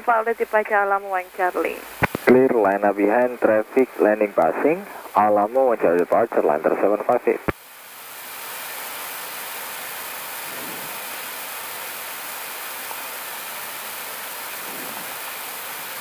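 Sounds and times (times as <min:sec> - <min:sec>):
rushing hiss of airflow in cockpit: 0:04.6 - 0:05.2, 0:07.6 - 0:16.0.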